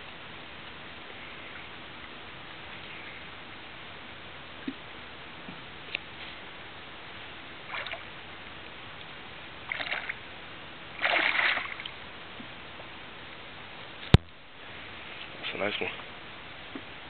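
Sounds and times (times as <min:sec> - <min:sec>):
fish splashing in water: 0:07.6 - 0:08.2, 0:09.7 - 0:10.2, 0:11.0 - 0:12.0.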